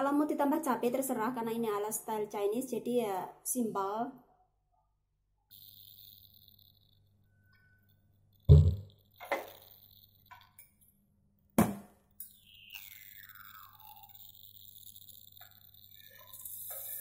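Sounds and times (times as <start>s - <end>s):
small clicks: 12.1s - 17.0s
falling whine: 12.2s - 17.0s.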